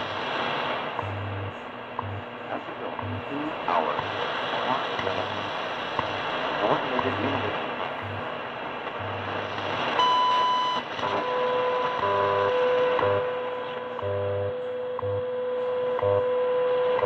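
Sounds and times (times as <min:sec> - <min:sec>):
low pulsing hum: 0:00.0 - 0:17.0
radio static: 0:00.0 - 0:17.0
steady radio tone: 0:00.0 - 0:17.0
ticks: 0:02.0 - 0:02.2.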